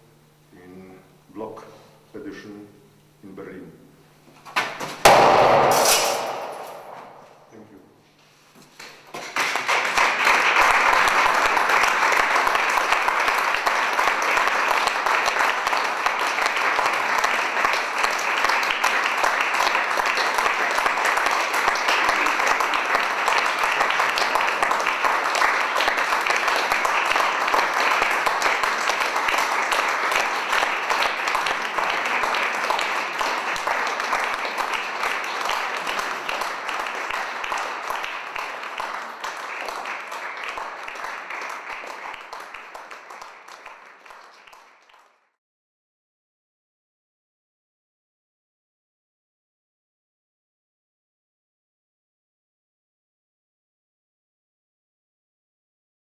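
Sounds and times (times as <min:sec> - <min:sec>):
brief loud sound: 0:05.0 - 0:07.5
audience applauding: 0:09.2 - 0:45.2.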